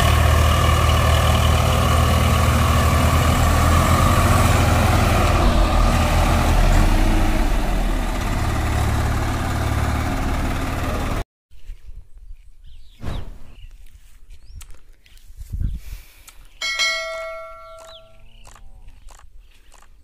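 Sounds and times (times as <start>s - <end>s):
tractor diesel engine under load: 0.0s - 11.2s.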